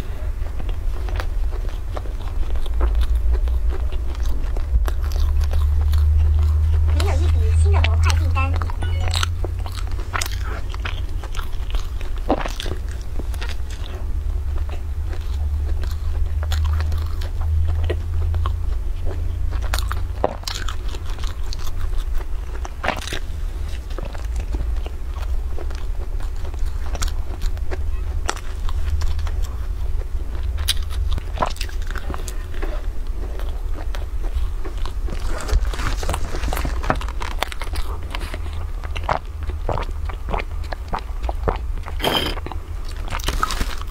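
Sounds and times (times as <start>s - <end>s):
chewing: 0.0s - 43.9s
crunching bread: 0.0s - 43.9s
steady low hum: 0.0s - 43.9s.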